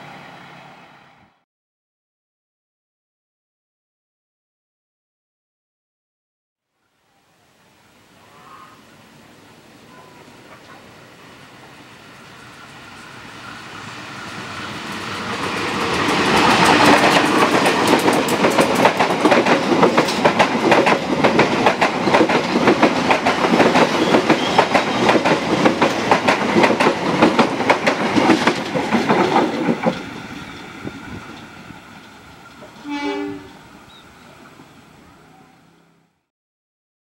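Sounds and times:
passenger train passing: 0:00.0 - 0:01.4, 0:08.9 - 0:36.3
wheels clacking over rail joints: 0:14.2 - 0:32.8.

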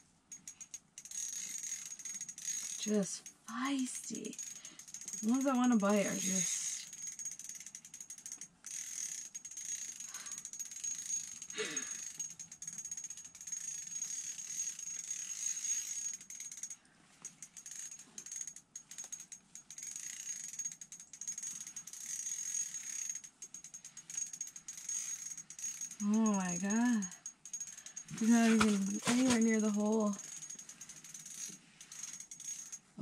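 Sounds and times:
fishing reel drag ratcheting: 0:00.0 - 0:33.0
reel being cranked: 0:00.0 - 0:33.0.

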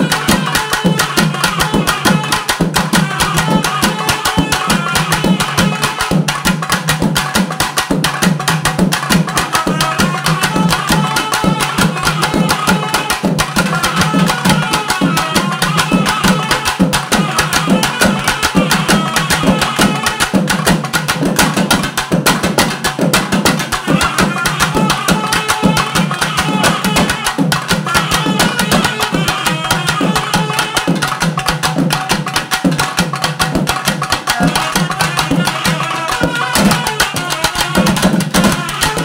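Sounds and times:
shrill reed pipe melody: 0:00.0 - 0:06.4, 0:09.2 - 0:20.5, 0:23.7 - 0:31.2, 0:33.8 - 0:39.0
fast loud drumming: 0:00.0 - 0:39.0.

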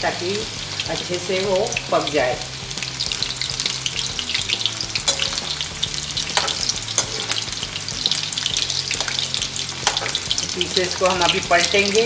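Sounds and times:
chicken deep-frying in oil: 0:00.0 - 0:12.0
slotted spoon knocking pan: 0:05.0 - 0:07.5, 0:09.8 - 0:10.4.

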